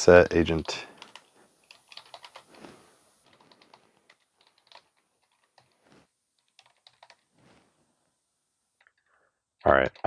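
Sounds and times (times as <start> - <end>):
computer keyboard typing: 0.6 - 2.5, 3.3 - 5.8, 6.4 - 7.2.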